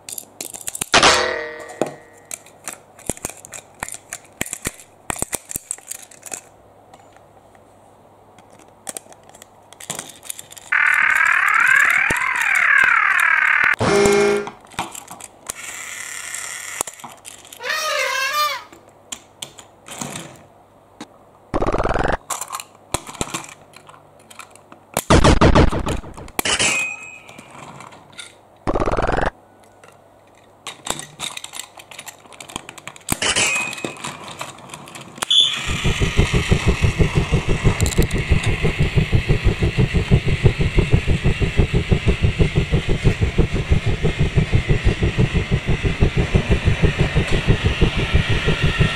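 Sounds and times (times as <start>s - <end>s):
toy train motor hum and clatter: 2.3s - 6.5s, 8.5s - 13.8s, 14.7s - 18.4s, 30.7s - 48.9s.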